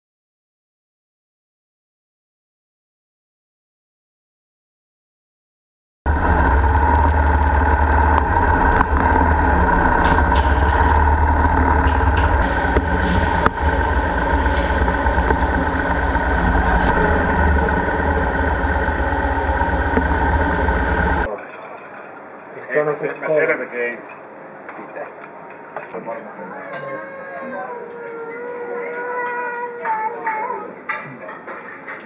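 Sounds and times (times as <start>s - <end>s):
motorcycle engines rumbling: 6.1s - 21.3s.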